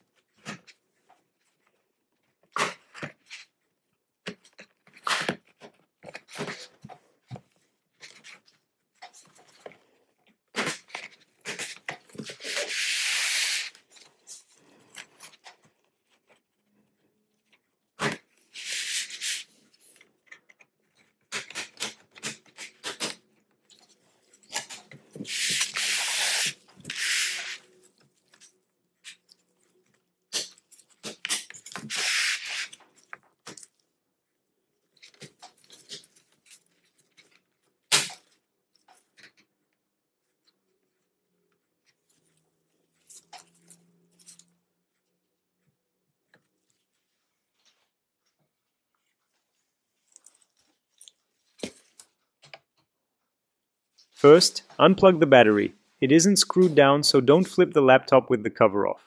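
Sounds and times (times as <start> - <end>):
plastic card scraping plastic seam: 10.6 - 14.0, 18.0 - 19.6, 24.4 - 28.0, 30.3 - 33.0.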